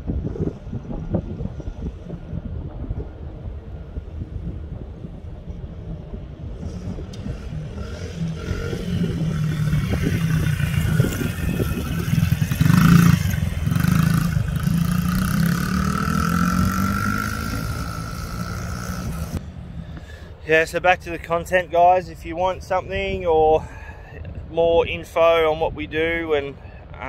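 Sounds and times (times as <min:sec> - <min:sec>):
dirt bike engine revving: 0:06.5 - 0:19.5.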